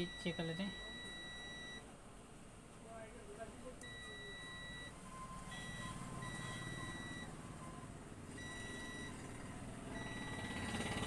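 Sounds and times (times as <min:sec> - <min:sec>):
multimeter continuity beeps: 0:00.0 - 0:01.9, 0:03.8 - 0:07.8, 0:08.4 - 0:09.3, 0:09.9 - 0:11.0.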